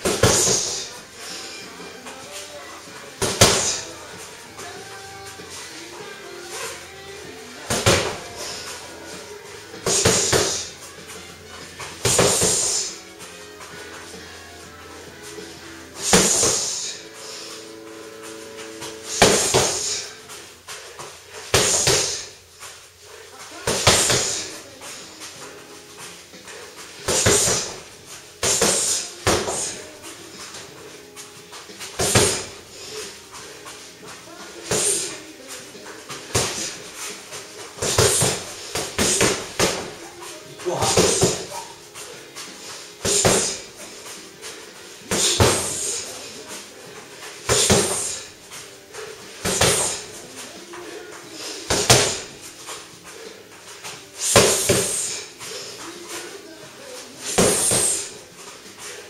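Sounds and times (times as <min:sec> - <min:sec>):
heavy thuds on punching bag: 0:00.0 - 0:00.9, 0:12.0 - 0:12.9, 0:16.0 - 0:16.8, 0:19.1 - 0:20.0, 0:21.5 - 0:22.3, 0:32.0 - 0:32.6
quiet shuffling: 0:00.9 - 0:09.8.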